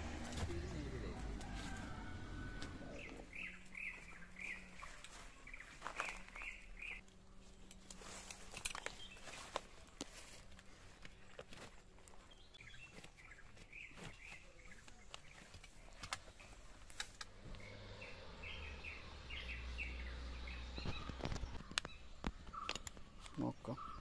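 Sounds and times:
birds chirping: 0:00.0 - 0:24.0
clicks and rustles of straps: 0:03.7 - 0:17.6, 0:20.8 - 0:23.4.

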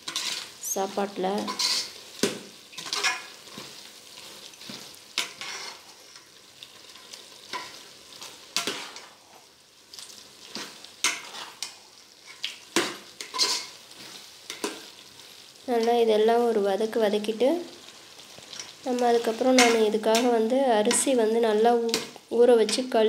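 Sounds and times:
vegetables sizzling: 0:00.0 - 0:23.0
metal ladle scraping pot: 0:00.1 - 0:00.5, 0:01.4 - 0:02.0, 0:05.2 - 0:05.9, 0:13.2 - 0:13.7.

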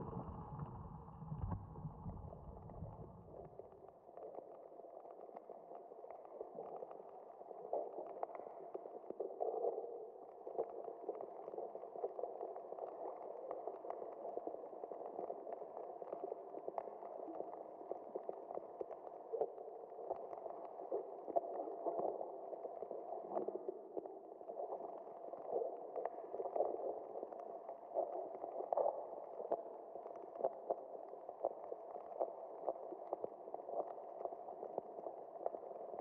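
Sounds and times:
muffled bubbling with pops: 0:00.0 - 0:09.4.

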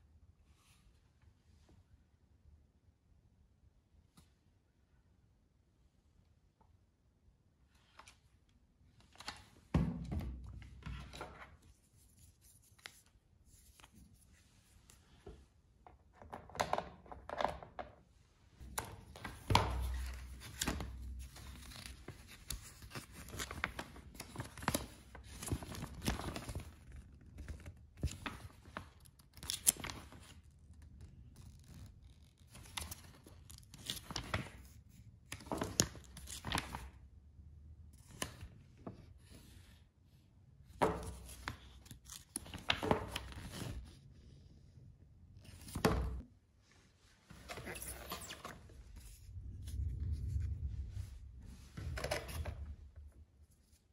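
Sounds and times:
paper pages turning: 0:18.6 - 0:36.9, 0:40.8 - 0:44.0, 0:47.3 - 0:50.4, 0:51.8 - 0:52.8.

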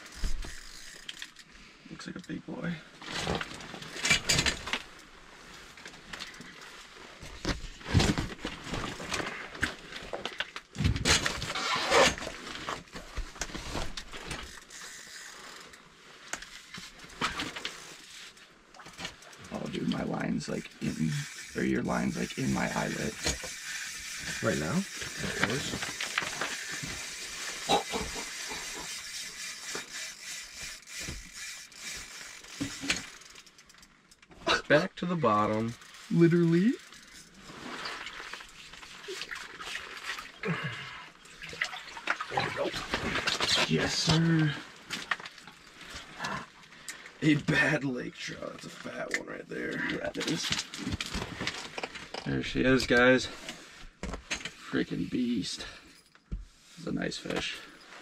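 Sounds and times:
small irregular clicks: 0:00.0 - 0:02.4, 0:13.3 - 0:34.4
rustling and knocking of gear: 0:03.0 - 0:20.0, 0:22.8 - 0:34.4, 0:50.1 - 0:54.7
steady hiss: 0:19.5 - 0:29.9.

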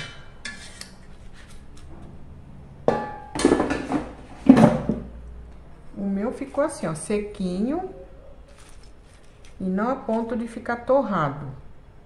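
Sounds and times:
air fryer basket knocking: 0:02.8 - 0:05.1
air fryer basket clattering thuds: 0:02.9 - 0:05.1.

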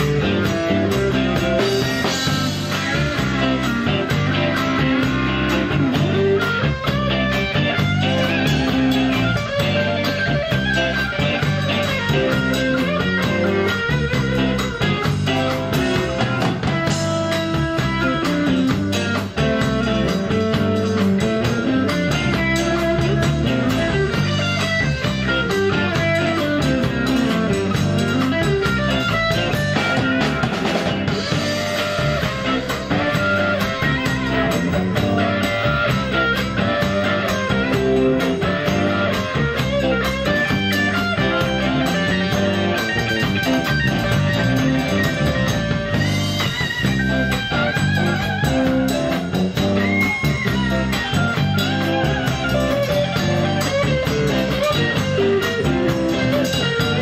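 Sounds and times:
drums: 0:00.0 - 0:57.0
electric bass: 0:00.0 - 0:57.0
electric guitar: 0:00.0 - 0:57.0.

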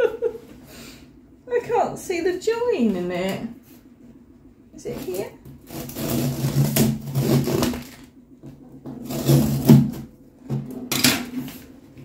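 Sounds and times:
scissors scraping cardboard and tape: 0:04.9 - 0:08.0, 0:09.0 - 0:10.0.

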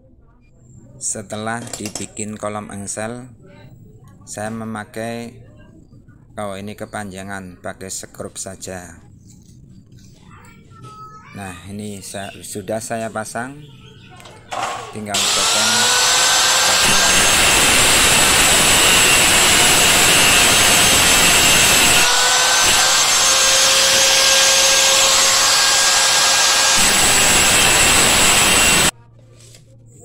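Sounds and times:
angle grinder cutting sheet metal: 0:14.6 - 0:28.9.

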